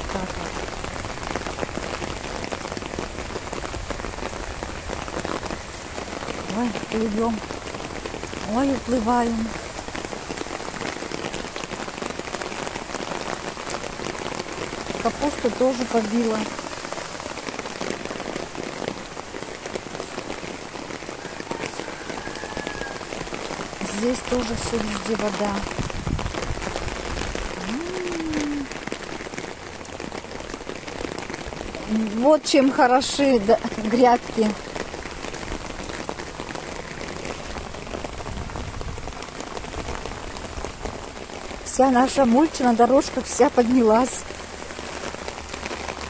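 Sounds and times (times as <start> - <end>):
rain falling steadily: 0.0 - 46.0.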